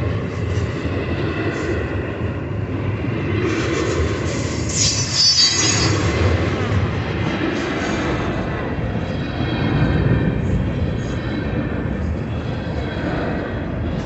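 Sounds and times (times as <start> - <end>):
freight train wheels rumbling: 0.0 - 14.0
high-pitched wheel squeal: 4.5 - 6.4.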